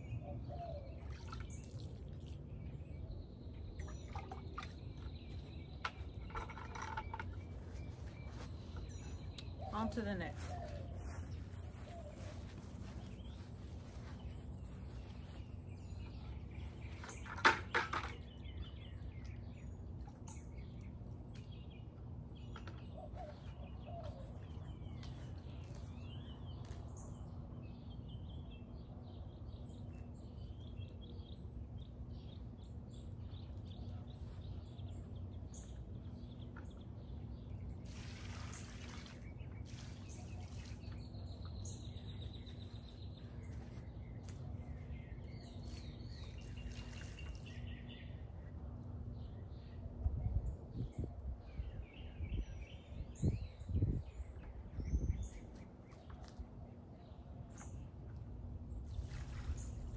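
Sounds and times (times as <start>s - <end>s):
small birds chirping: 0.0s - 59.9s
water poured from a bucket: 37.7s - 40.9s, 46.3s - 47.6s, 58.9s - 59.9s.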